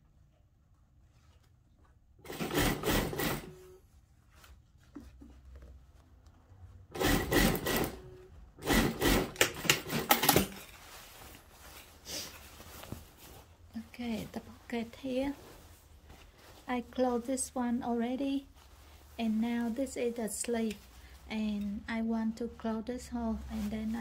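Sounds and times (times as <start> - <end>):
fabric handling: 0.5 - 2.4, 3.2 - 8.4, 9.8 - 22.4, 23.2 - 24.0
sewing machine stitching: 2.2 - 3.6, 6.9 - 10.6.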